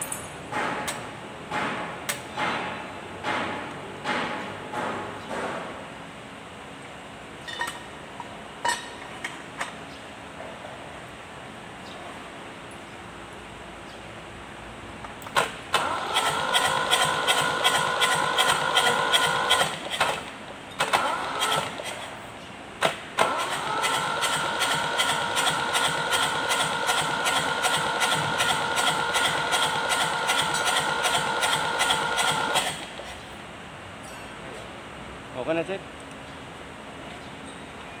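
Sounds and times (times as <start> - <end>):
starter motor cranking diesel engine: 15.3 - 22.1, 23.2 - 33.1.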